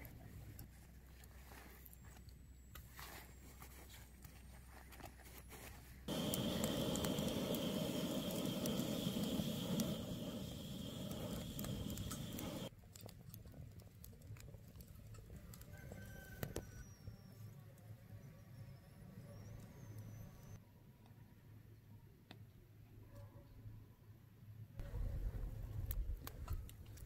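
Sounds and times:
fish sizzling on grill: 0:06.1 - 0:12.7
charcoal crackling and ticking: 0:06.1 - 0:16.9, 0:25.6 - 0:27.0.

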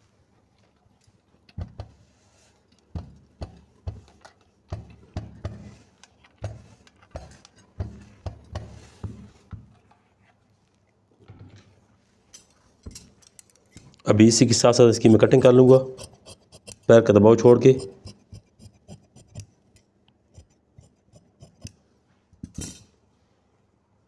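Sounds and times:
faint handling sounds: 0:00.0 - 0:16.0.

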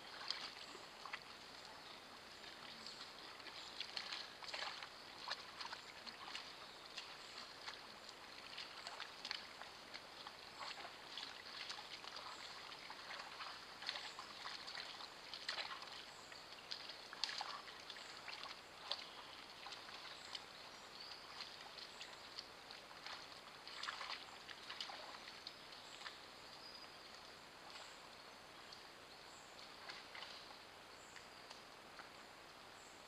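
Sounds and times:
water splashing and sloshing: 0:00.0 - 0:28.1, 0:29.4 - 0:32.3.

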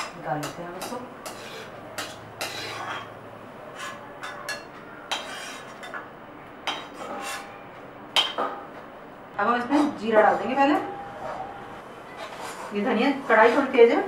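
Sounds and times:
metal spoon scraping a pan: 0:00.0 - 0:06.0, 0:06.6 - 0:07.6, 0:12.1 - 0:13.8.

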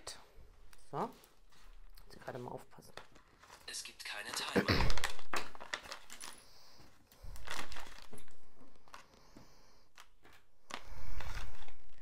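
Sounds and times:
packaging rustling: 0:02.8 - 0:12.0.

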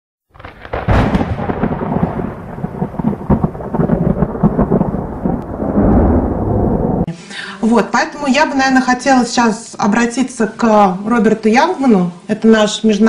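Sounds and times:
thunder crack and rumble: 0:00.3 - 0:07.1.

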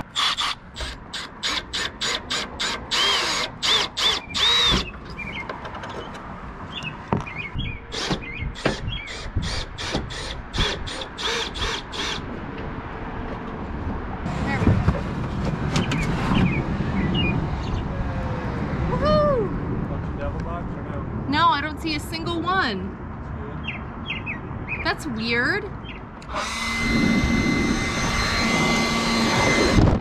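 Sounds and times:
cordless drill whining in bursts: 0:00.0 - 0:05.0, 0:07.9 - 0:12.3, 0:26.3 - 0:30.0.

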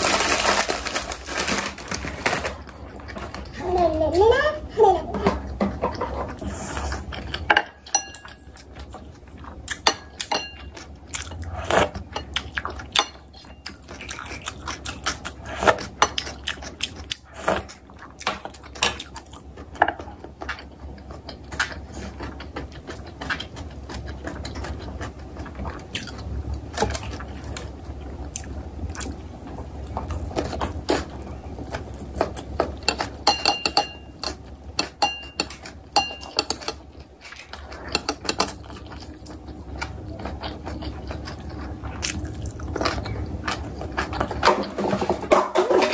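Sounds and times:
person chewing food: 0:05.4 - 0:44.7
chopsticks clinking on a plate: 0:07.3 - 0:08.6, 0:09.8 - 0:10.8, 0:32.8 - 0:36.8, 0:37.8 - 0:38.6.

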